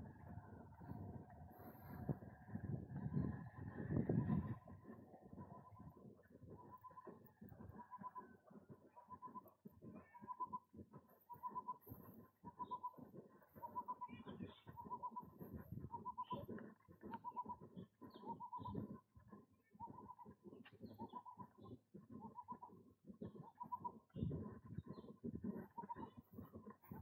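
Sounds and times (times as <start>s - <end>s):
bird calling: 13.6s - 18.8s.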